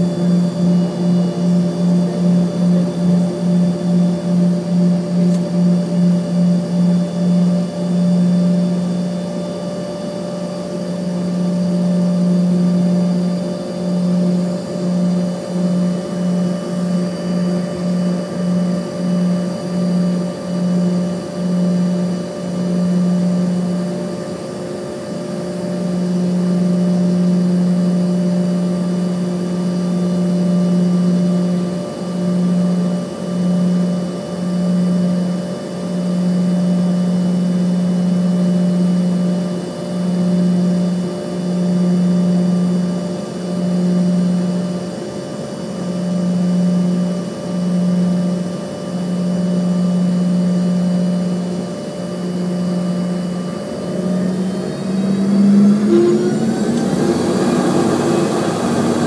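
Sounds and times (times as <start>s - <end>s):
jet engines humming: 0.0s - 32.2s, 47.5s - 59.0s.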